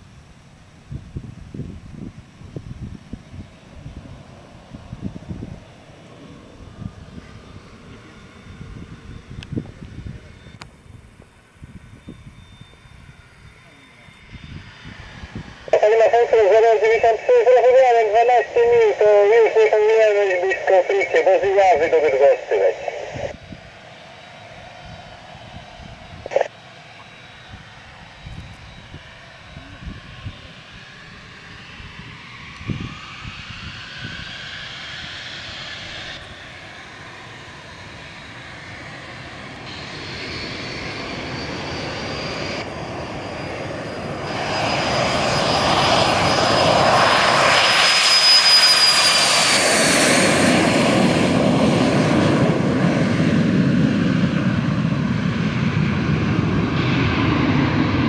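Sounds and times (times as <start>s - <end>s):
jet engines running: 0.0s - 58.0s
high steady jet whistle: 11.5s - 21.3s.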